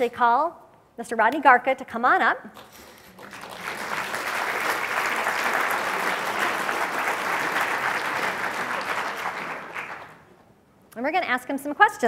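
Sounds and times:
audience applauding: 3.1s - 10.4s.

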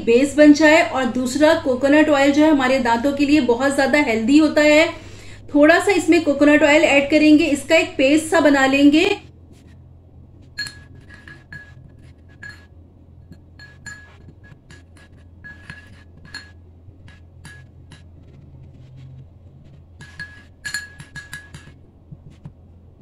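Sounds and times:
metal spoon clinking glass bowl: 10.6s - 12.7s, 13.3s - 17.7s, 20.0s - 21.8s.

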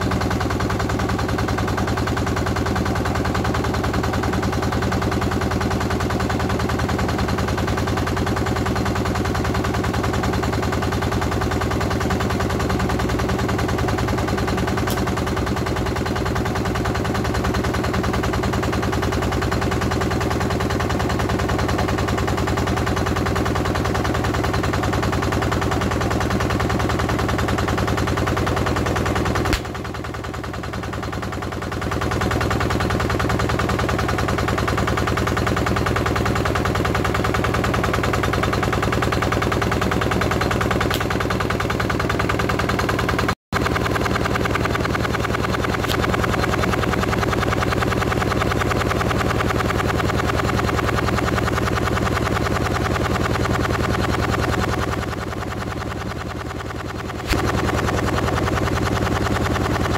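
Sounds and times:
road roller engine running: 0.0s - 59.9s
sharp click: 14.8s - 15.2s, 29.5s - 29.8s, 40.9s - 41.3s.

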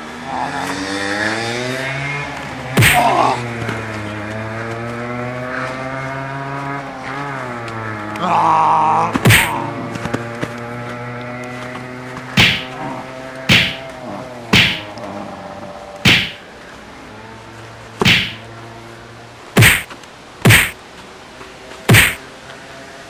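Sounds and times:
sharp whacking blows: 2.8s - 3.3s, 9.2s - 9.6s, 12.4s - 12.8s, 13.4s - 13.9s, 14.5s - 14.9s, 16.0s - 16.4s, 18.0s - 18.4s, 19.6s - 20.8s, 21.9s - 22.2s.

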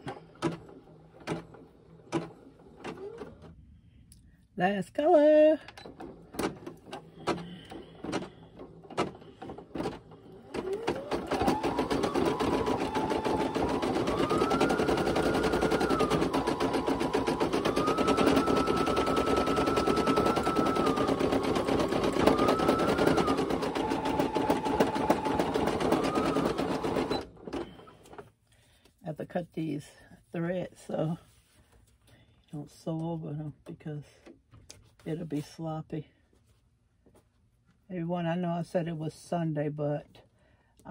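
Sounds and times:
embroidery machine stitching: 0.0s - 3.5s, 5.7s - 28.2s.

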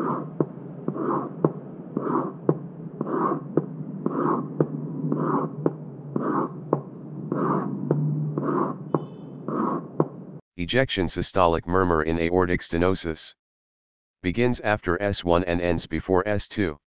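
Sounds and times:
pen scraping and tapping cardboard: 0.0s - 10.2s.

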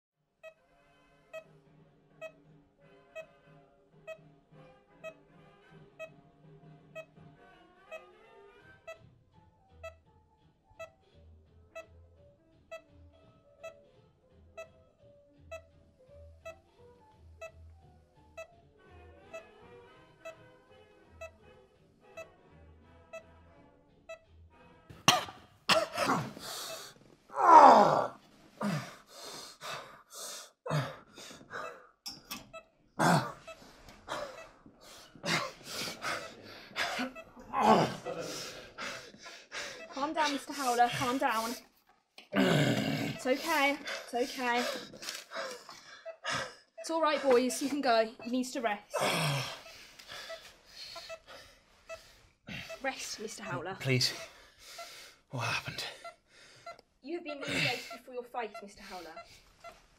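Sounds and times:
heart monitor beeping: 2.2s - 2.4s, 3.2s - 3.4s, 4.1s - 4.3s, 5.0s - 5.2s, 6.0s - 6.2s, 6.9s - 7.2s, 9.7s - 10.1s, 12.7s - 13.0s, 13.6s - 13.9s, 15.4s - 18.6s, 19.3s - 21.4s, 30.7s - 41.6s
man gasping and breathing hard: 25.9s - 27.0s, 28.0s - 31.9s, 33.0s - 37.1s, 37.7s - 39.9s, 49.0s - 51.6s, 54.2s - 56.8s
man groaning cry: 27.3s - 28.8s, 33.0s - 33.4s, 36.8s - 38.6s, 42.3s - 43.2s, 49.0s - 49.6s.

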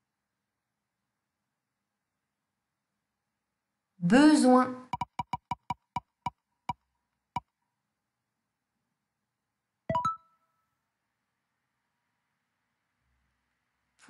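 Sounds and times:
digital spinning wheel ticking: 4.9s - 6.8s.

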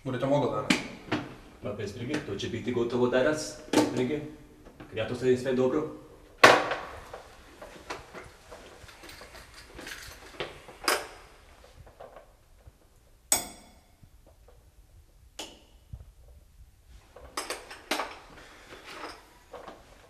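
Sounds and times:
tools rattling in toolbox: 7.0s - 11.2s
metal tools clinking: 8.5s - 11.3s
sharp metallic knocks ringing: 13.3s - 14.0s.

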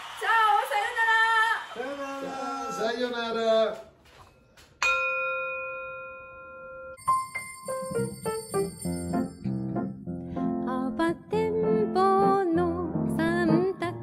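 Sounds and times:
bell chime: 4.8s - 9.7s
music with jingling: 7.0s - 9.8s.

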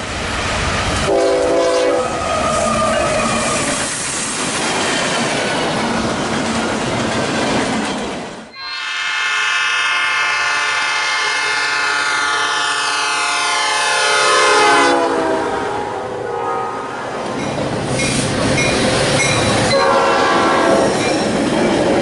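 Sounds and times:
model trains rushing: 0.0s - 16.3s, 17.0s - 22.0s
train horn chord: 1.1s - 2.1s, 8.5s - 17.2s, 19.7s - 20.9s.

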